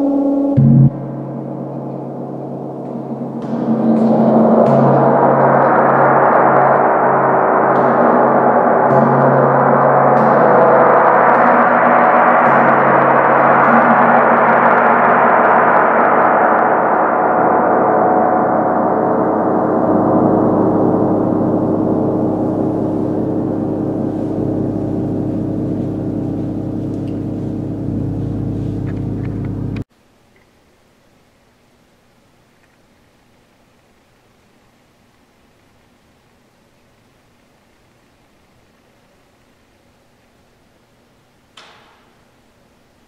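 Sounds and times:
gong struck with soft mallet: 0:00.0 - 0:29.8
pulsing low hum: 0:00.0 - 0:29.9.

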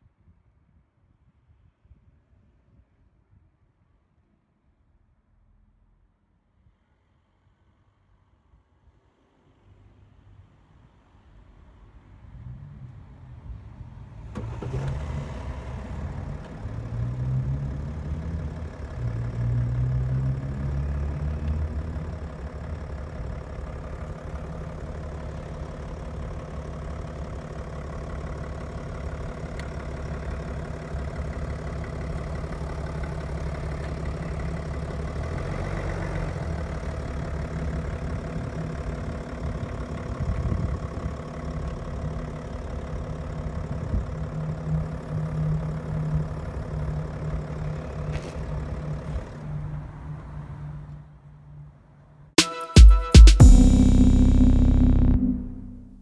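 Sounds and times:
diesel engine idling: 0:15.7 - 0:49.8, 0:53.4 - 0:56.0.

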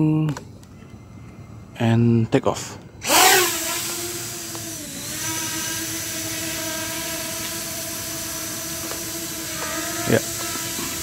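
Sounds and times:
quadcopter motors buzzing: 0:03.0 - 0:11.0.

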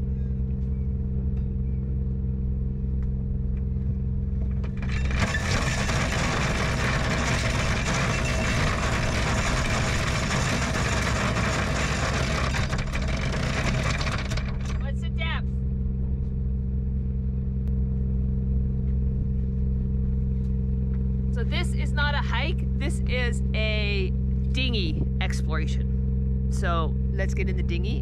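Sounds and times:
diesel engines idling: 0:04.4 - 0:15.4, 0:20.1 - 0:28.0
anchor chain rattling: 0:04.7 - 0:14.9.

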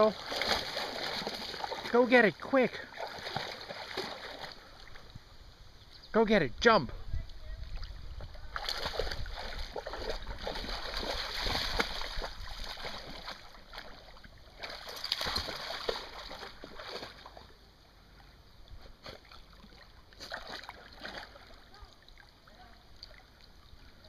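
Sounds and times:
dog splashing through water: 0:00.0 - 0:02.0, 0:02.9 - 0:04.7, 0:07.8 - 0:17.5, 0:19.0 - 0:23.2.

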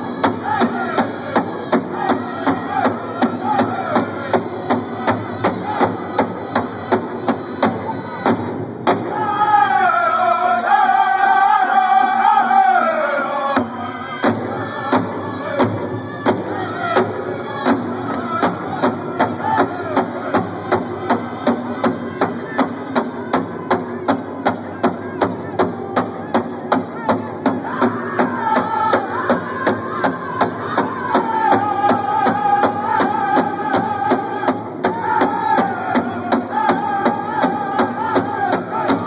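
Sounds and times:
big drum steady beat: 0:00.0 - 0:09.3, 0:13.6 - 0:39.0
high wavering singing voices: 0:09.1 - 0:23.6.

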